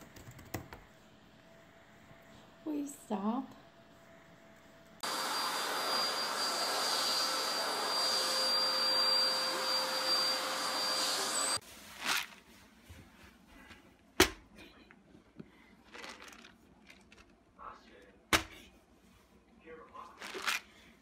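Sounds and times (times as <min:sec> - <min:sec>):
vacuum cleaner running: 0:05.0 - 0:11.6.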